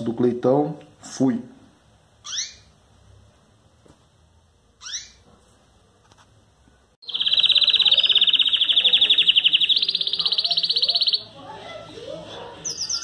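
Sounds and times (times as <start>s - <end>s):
canary chirp: 2.2s - 2.8s, 4.7s - 5.3s, 7.0s - 13.0s
songbird fast trill: 7.0s - 11.3s.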